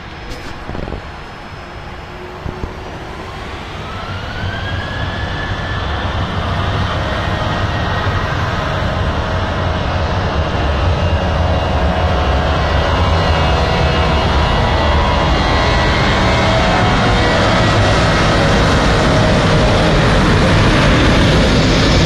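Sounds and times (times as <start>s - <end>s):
jet engines spooling up: 0.0s - 22.0s.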